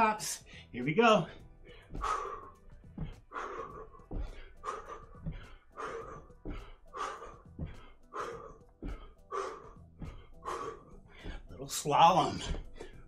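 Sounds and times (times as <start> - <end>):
man breathing hard: 0.4 - 11.6, 12.4 - 13.0
feet thudding on floor: 1.7 - 11.5, 12.4 - 13.0.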